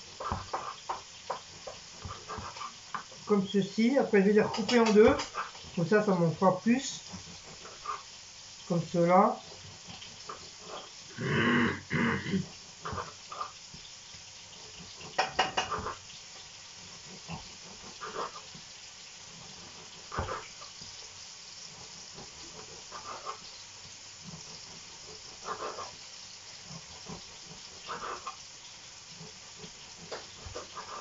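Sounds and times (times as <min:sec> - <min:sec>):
faint steady hiss: 0:00.0 - 0:31.0
knife tapping on wooden board: 0:15.2 - 0:15.8.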